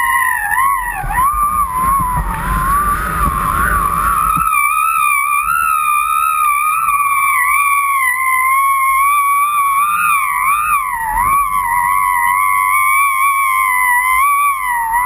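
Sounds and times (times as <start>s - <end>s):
low rumbling noise: 0.0s - 15.0s.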